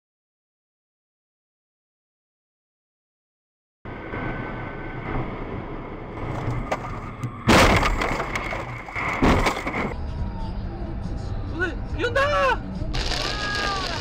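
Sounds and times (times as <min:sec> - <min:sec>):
loud crashing impacts: 0:07.4 - 0:10.0.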